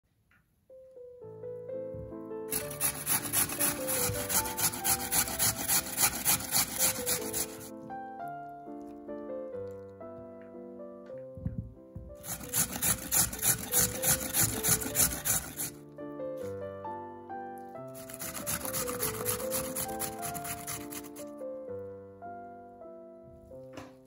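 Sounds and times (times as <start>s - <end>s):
soft melodic background music: 0.6s - 24.0s
potato rasping on metal grater: 2.5s - 7.7s, 12.2s - 15.8s, 18.0s - 21.2s.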